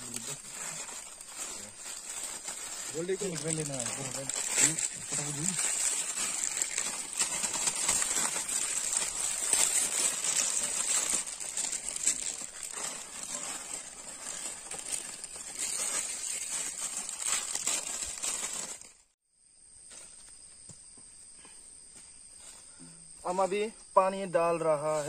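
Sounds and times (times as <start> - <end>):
plastic packets crinkling: 0.0 - 19.2.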